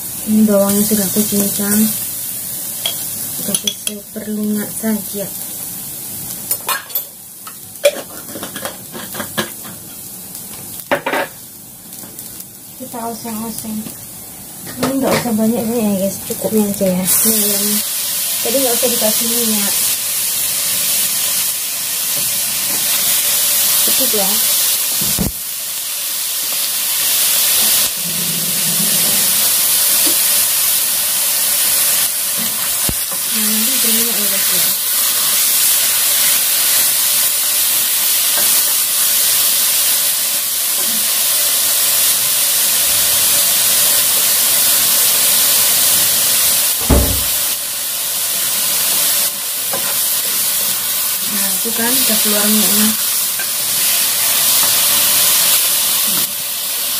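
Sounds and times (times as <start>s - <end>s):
chicken sizzling in a wok: 0.0s - 56.9s
sharp knock: 46.8s - 47.4s.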